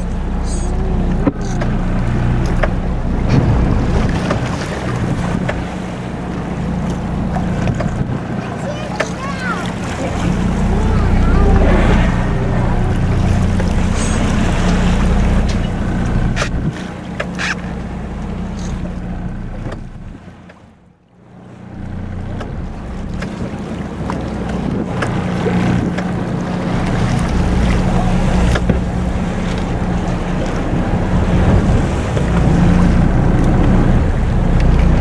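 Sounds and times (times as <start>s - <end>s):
boat engine idling: 0.0s - 35.0s
choppy water: 0.0s - 35.0s
wind on microphone: 7.1s - 8.5s, 23.1s - 35.0s.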